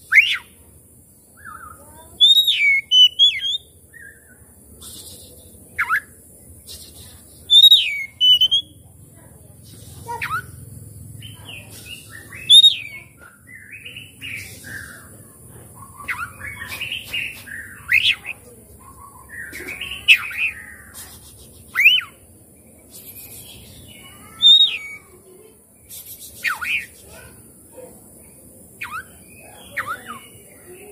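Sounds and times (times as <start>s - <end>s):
bird singing with whistles: 0.1s - 0.6s, 1.4s - 4.2s, 4.9s - 6.1s, 7.5s - 8.7s, 12.0s - 15.0s, 21.8s - 22.2s, 23.1s - 25.1s, 28.8s - 30.4s.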